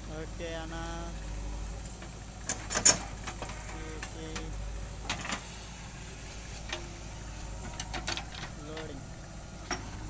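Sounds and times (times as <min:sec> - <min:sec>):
diesel engine hum: 0:00.0 - 0:10.0
backhoe bucket clanks and knocks: 0:02.5 - 0:04.4, 0:07.6 - 0:09.0, 0:09.6 - 0:10.0.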